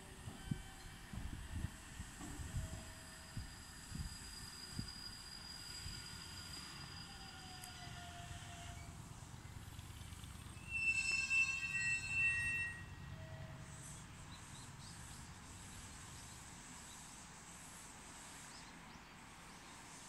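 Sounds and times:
train wheels rumbling on rail: 0.0 - 20.0
high-pitched metallic squeal: 2.4 - 9.0, 10.4 - 15.7.

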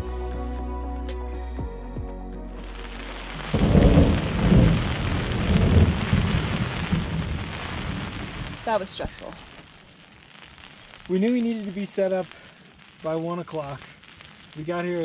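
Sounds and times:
background music: 0.0 - 5.1
low rumbling: 0.0 - 9.9
snow and rain pelting tent: 2.5 - 15.0.

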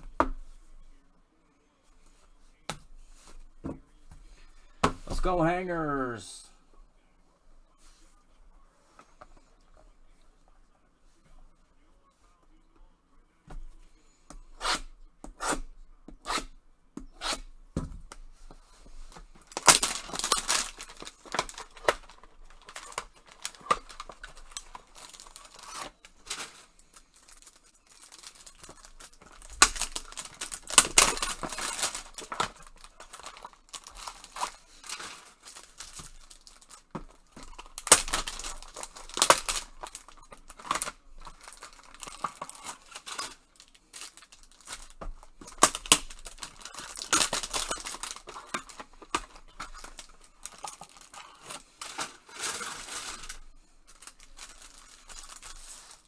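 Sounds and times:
cards clicking and rustling: 19.0 - 56.0
wrapper ripping and crinkling: 19.4 - 56.0.

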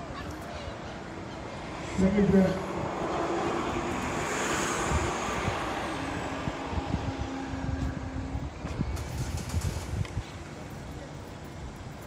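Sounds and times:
low rumble with buffeting: 4.9 - 11.1.

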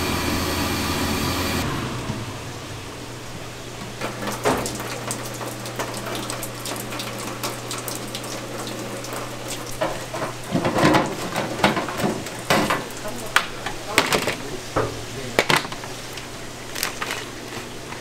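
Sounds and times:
low hum: 0.0 - 3.8.

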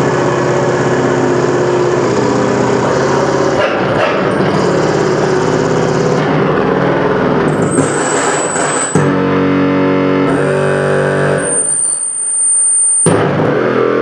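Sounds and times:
distorted droning noise music: 0.0 - 14.0
thin high whine: 4.3 - 13.4.

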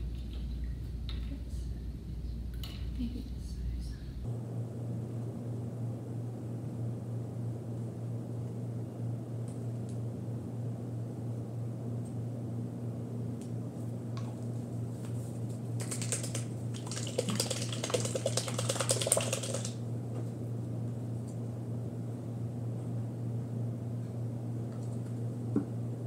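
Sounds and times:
steady low hum: 0.0 - 26.0
plastic paint bottle rattling: 15.8 - 19.8.

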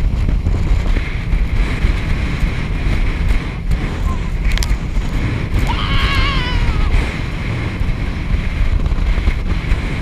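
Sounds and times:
wind buffeting microphone: 0.0 - 10.0
high wavering cry: 5.7 - 7.0.

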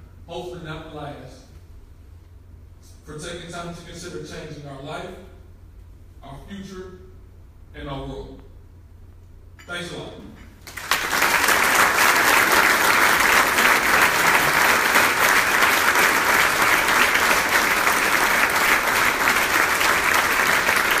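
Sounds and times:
crowd applauding: 10.6 - 21.0.

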